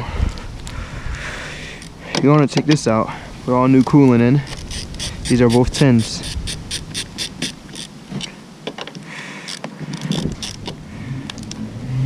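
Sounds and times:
socket ratchet clicking: 4.5 - 7.9, 9.5 - 10.8.

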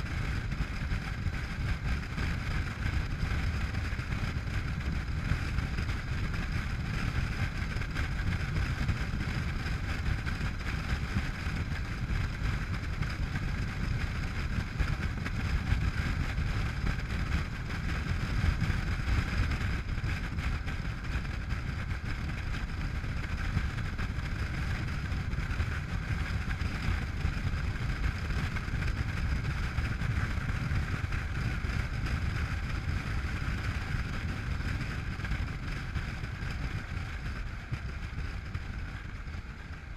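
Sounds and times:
motorcycle engine running: 0.0 - 39.9
wind rushing over camera: 0.0 - 39.9.

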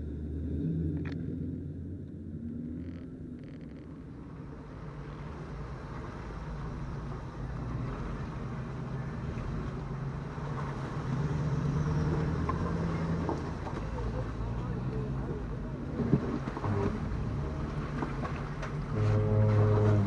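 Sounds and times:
off-road vehicle engine low revs: 0.0 - 20.0
water washing: 4.7 - 20.0.

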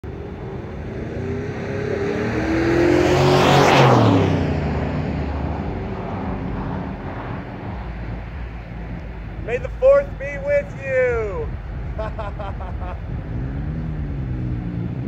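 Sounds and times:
car passing by: 0.1 - 11.9.

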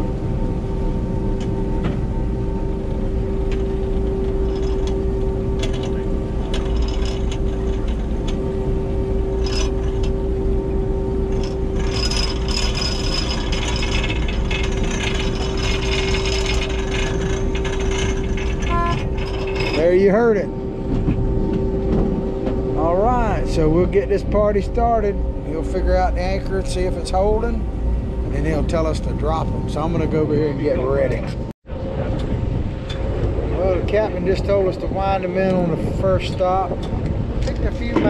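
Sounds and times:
boat engine humming: 0.0 - 38.0
mechanical rattling and clicking: 3.4 - 8.5, 11.2 - 20.2.

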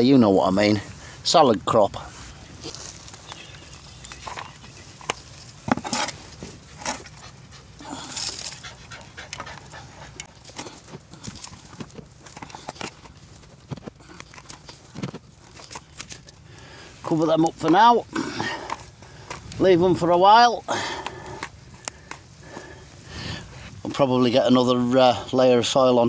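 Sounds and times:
spade scraping: 2.2 - 16.3.

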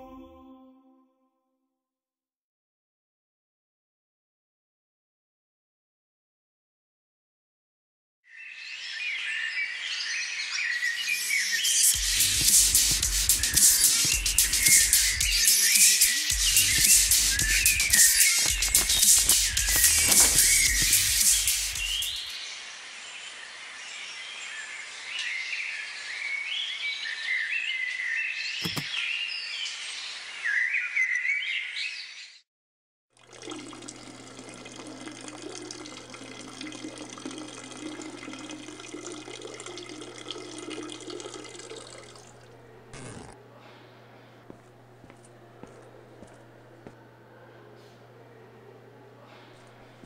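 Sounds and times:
birds chirping and warbling: 8.3 - 32.4
tap water running into sink: 33.2 - 42.5.

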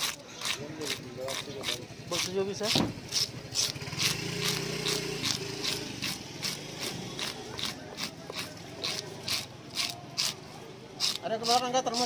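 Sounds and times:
knife scraping fish scales: 0.0 - 12.0.

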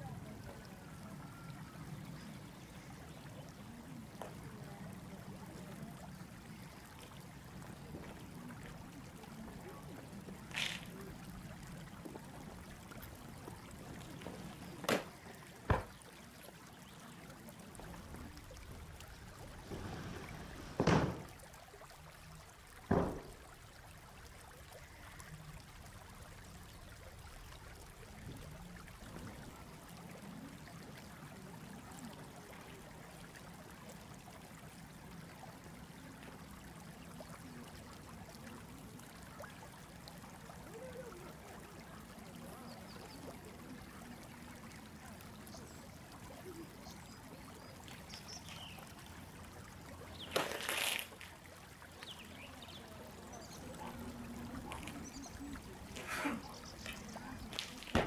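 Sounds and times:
background hiss: 17.6 - 24.2
sharp slaps: 57.6 - 58.0.

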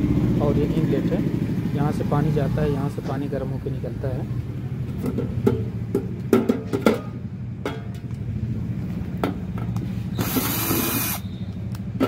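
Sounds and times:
cordless drill running: 10.2 - 11.3.

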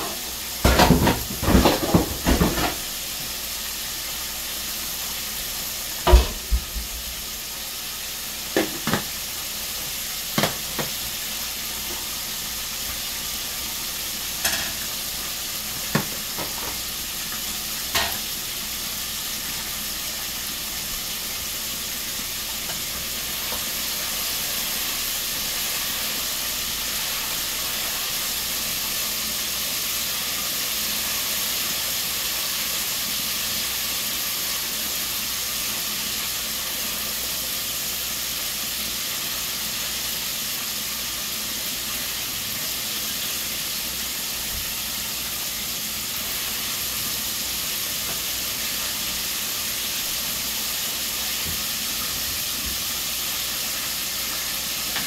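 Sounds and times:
chicken sizzling in hot oil: 0.0 - 55.0.

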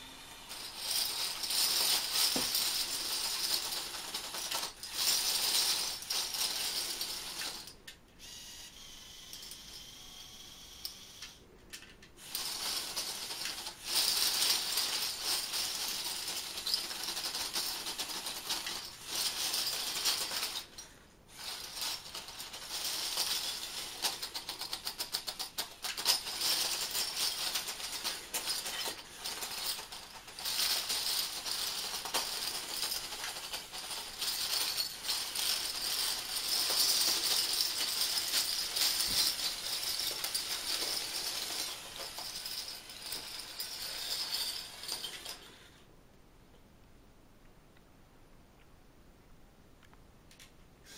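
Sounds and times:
metal bottle caps clattering: 12.6 - 45.6.

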